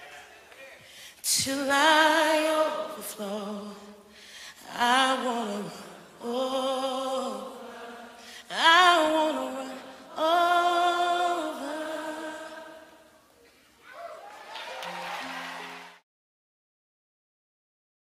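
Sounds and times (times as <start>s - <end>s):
person singing unaccompanied: 4.6s - 13.0s.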